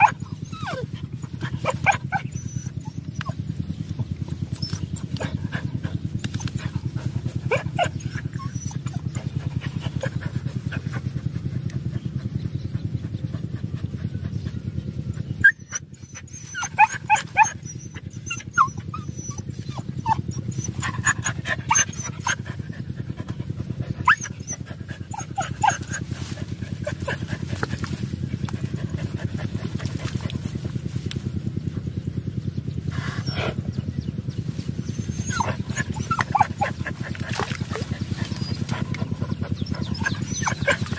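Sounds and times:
dog whines and yelps: 0.0s - 3.4s, 7.5s - 10.2s, 15.4s - 22.4s, 24.0s - 26.0s, 34.8s - 40.9s
dogs digging and sniffing: 0.0s - 40.9s
fast low pulsing: 0.0s - 40.9s.

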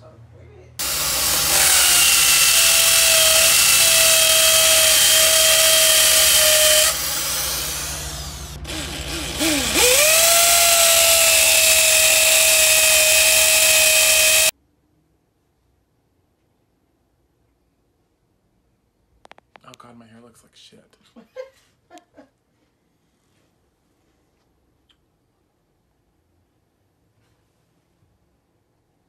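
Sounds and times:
electric drill motor whine: 0.8s - 14.5s.

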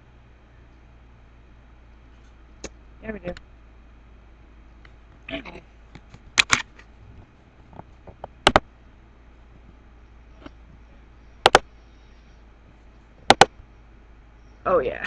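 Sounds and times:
faint steady hum: 0.0s - 15.0s
computer mouse double-clicking: 11.4s - 11.6s.

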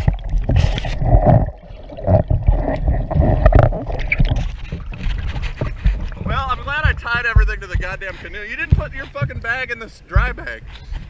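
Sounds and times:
muffled underwater gurgling: 0.0s - 9.5s
underwater knocks and thumps: 0.0s - 11.0s.

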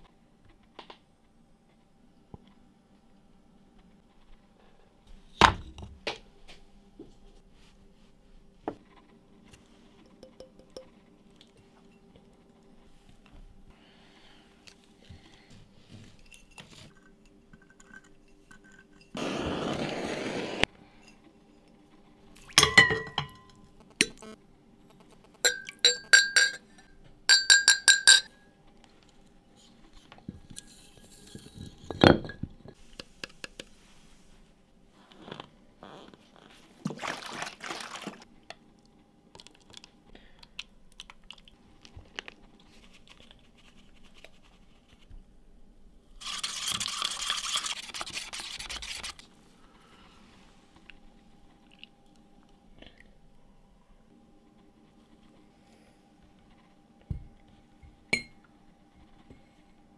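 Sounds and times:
glass pieces clinking: 25.4s - 26.7s, 27.3s - 28.3s.

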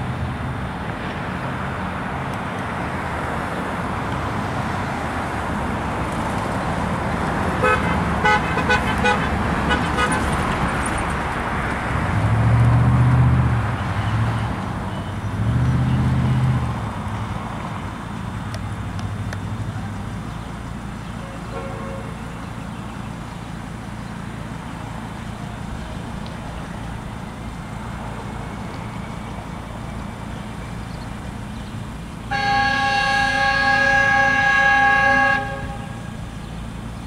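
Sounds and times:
low engine rumble: 0.0s - 37.0s
road traffic rumble: 0.0s - 37.0s
horn tooting: 7.6s - 10.4s, 21.2s - 22.3s, 32.3s - 36.4s.

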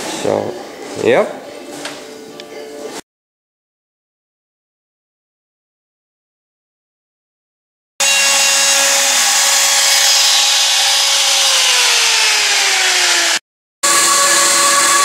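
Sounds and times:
cordless drill cutting plywood: 8.0s - 15.0s.

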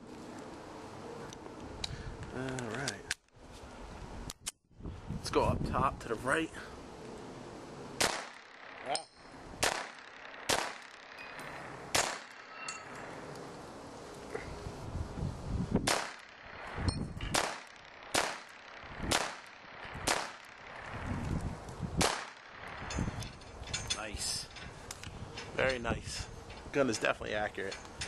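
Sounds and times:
pistol shots: 8.0s - 8.8s, 9.6s - 11.2s, 11.9s - 12.6s, 15.8s - 16.7s, 17.3s - 20.8s, 22.0s - 22.7s
bullets clanging on steel targets: 10.8s - 13.1s, 22.3s - 28.0s.

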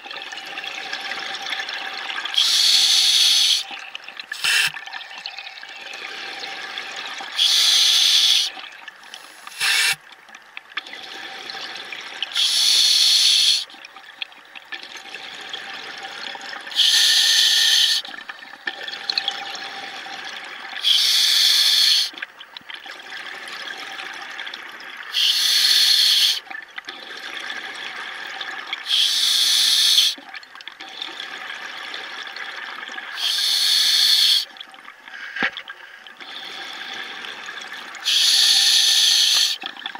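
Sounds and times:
regulator hiss: 7.4s - 8.5s, 9.2s - 10.0s, 12.4s - 13.6s, 16.8s - 18.0s, 25.2s - 26.4s, 28.9s - 30.2s, 33.2s - 34.4s, 38.0s - 39.6s.

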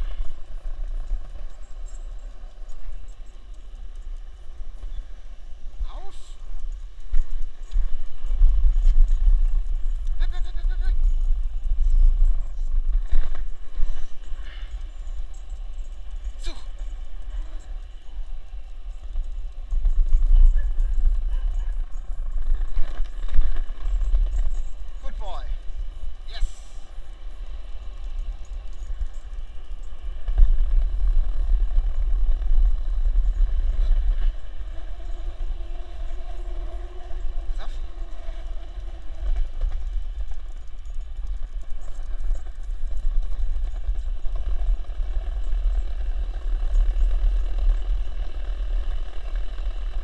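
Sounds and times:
skateboard wheels rolling on asphalt: 0.0s - 5.8s, 6.4s - 10.2s, 10.9s - 50.0s
skateboard wheels rolling: 26.9s - 50.0s.

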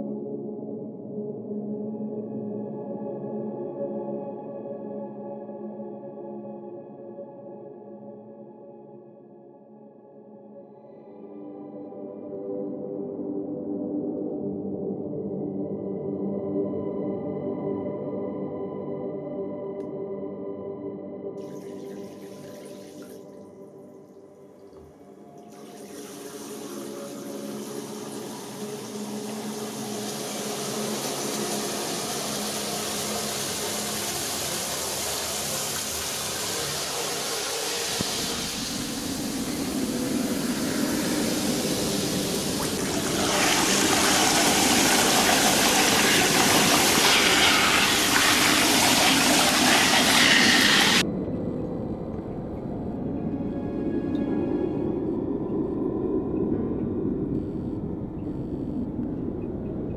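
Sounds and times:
low ambient music drone: 0.0s - 59.9s
rushing flushing water: 21.4s - 23.6s, 24.7s - 51.0s.

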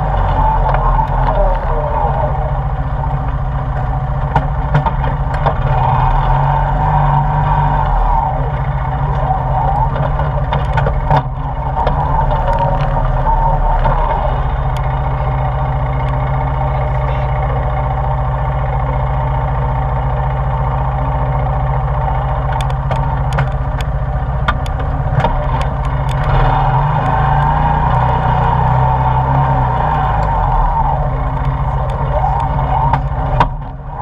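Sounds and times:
atv engine running: 0.0s - 34.0s
sharp clicks and knocks: 3.2s - 6.2s, 8.1s - 15.1s, 22.2s - 30.6s, 31.2s - 34.0s.

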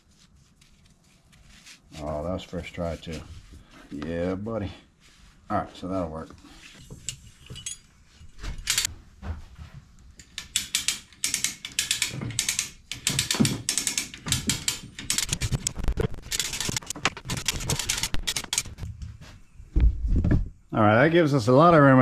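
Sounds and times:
ratchet pawl clicking: 10.4s - 15.3s.

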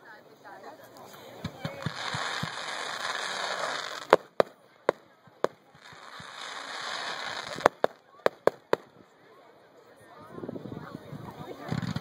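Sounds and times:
fireworks hissing: 1.0s - 9.0s
firework bang: 1.4s - 8.9s
firework pops: 1.4s - 9.0s, 11.6s - 12.0s.

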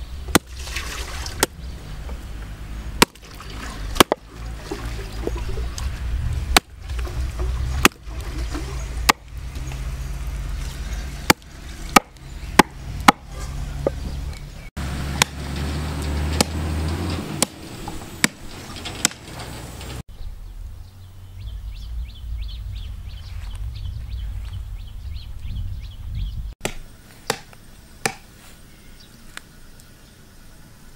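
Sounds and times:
low rumble: 1.2s - 18.9s, 19.9s - 26.6s
hatchet chopping on wooden block: 4.0s - 4.2s, 11.2s - 14.0s, 26.6s - 28.2s.

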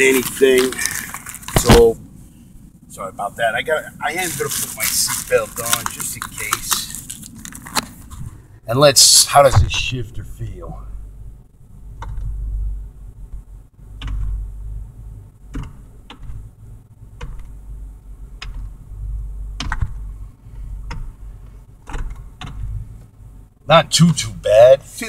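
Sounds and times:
gear shifter clicks and knocks: 13.3s - 14.4s, 15.4s - 18.9s, 19.5s - 23.2s.

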